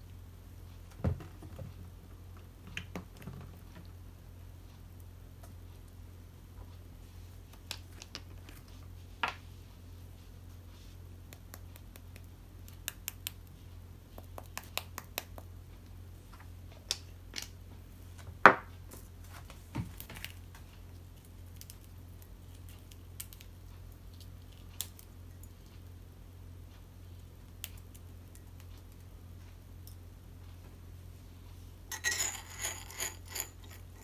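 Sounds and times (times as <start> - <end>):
spice jar clicks and taps: 11.3 - 13.4.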